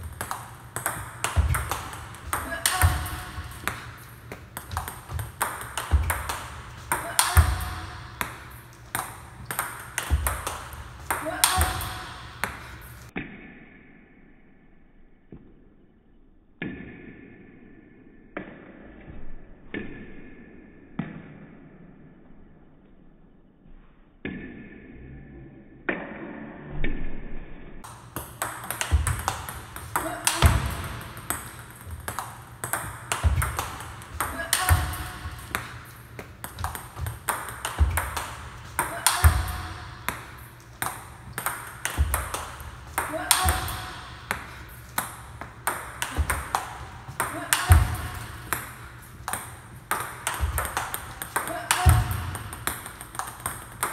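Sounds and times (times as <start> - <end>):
table tennis ball cracks: 0.1 - 13.1, 27.8 - 53.9.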